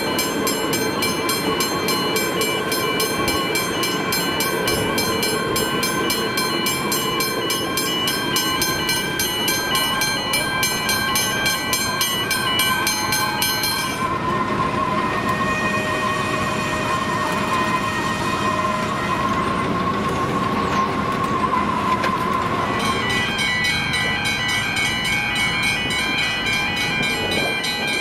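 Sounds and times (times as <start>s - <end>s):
level crossing bell ringing: 0.0s - 14.1s, 22.8s - 28.0s
steady ringing tone: 0.0s - 14.1s
electric train rumbling past: 0.0s - 28.0s.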